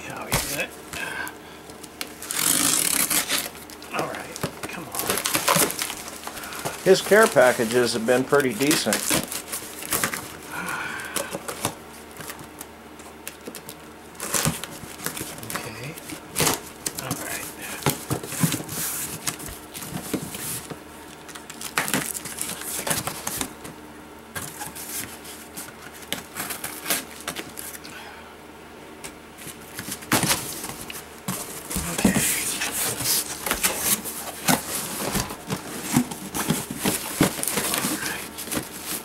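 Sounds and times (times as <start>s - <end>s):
packing material rustling: 1.8s - 10.4s, 29.4s - 39.0s
cardboard flaps scraping: 2.2s - 10.4s, 29.4s - 39.0s.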